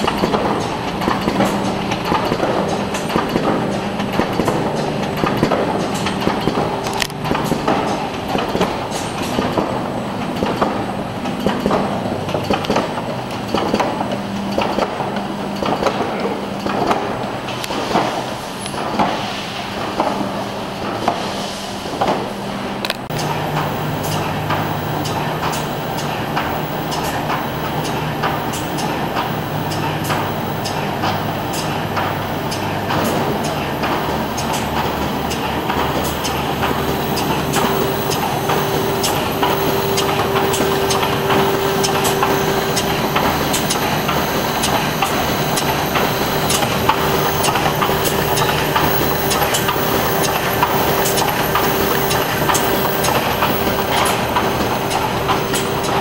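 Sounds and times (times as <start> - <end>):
machine clattering with sharp clicks: 0.0 - 21.3, 21.9 - 56.0
steady tone: 23.1 - 56.0.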